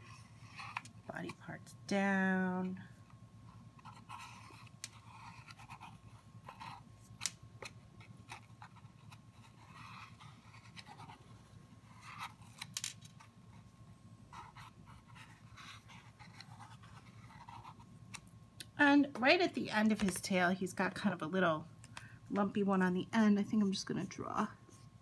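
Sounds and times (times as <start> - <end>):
pencil scratching on paper: 3.8 - 6.9, 8.0 - 12.6, 14.3 - 17.9.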